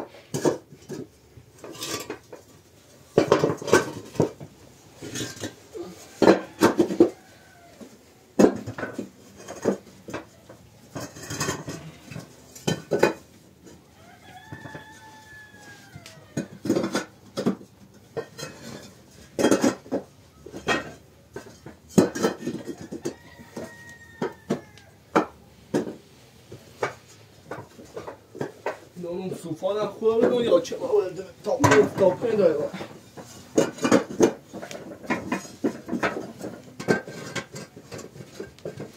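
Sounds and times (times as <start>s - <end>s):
bricks clinking and knocking: 3.2s - 7.3s, 8.4s - 13.8s, 16.4s - 26.0s, 31.5s - 38.9s.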